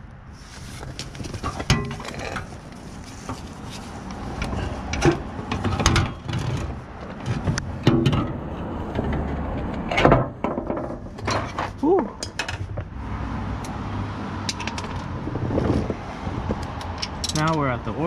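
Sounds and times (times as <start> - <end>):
hand tools clicking and knocking: 16.6 - 17.7.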